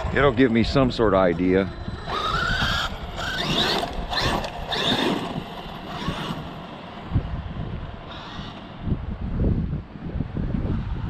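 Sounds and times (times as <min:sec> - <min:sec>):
electric motor whining: 0:00.0 - 0:07.4, 0:08.0 - 0:09.0.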